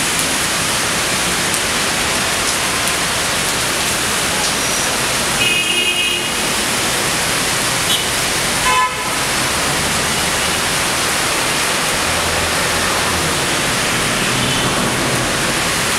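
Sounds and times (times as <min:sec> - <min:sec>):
rain hissing: 0:00.0 - 0:15.9
vehicle horn honking: 0:05.4 - 0:06.5, 0:07.9 - 0:09.3.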